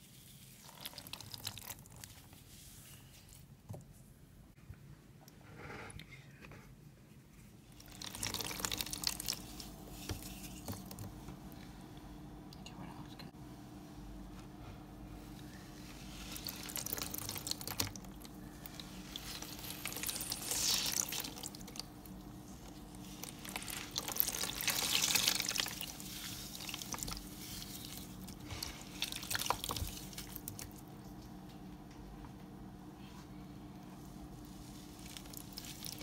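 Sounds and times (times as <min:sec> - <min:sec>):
slime squishing: 0:00.0 - 0:03.5, 0:07.6 - 0:11.2, 0:15.8 - 0:31.4, 0:34.3 - 0:36.0.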